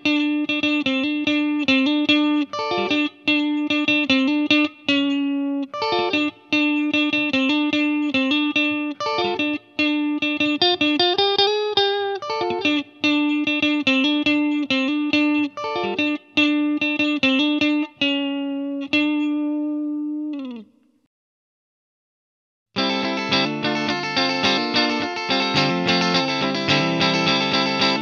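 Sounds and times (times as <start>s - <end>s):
electric guitar lead line: 0.0s - 20.7s, 22.8s - 28.0s.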